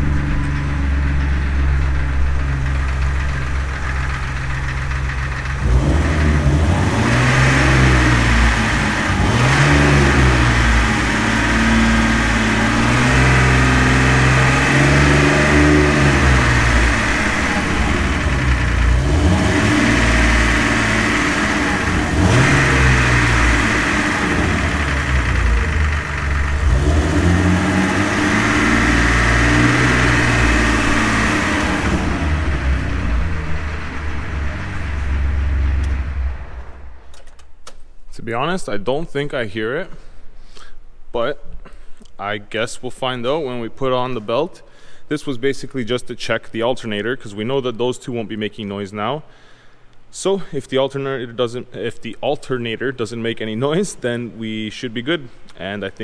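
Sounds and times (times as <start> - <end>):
car engine idling and revving: 0.0 - 37.6.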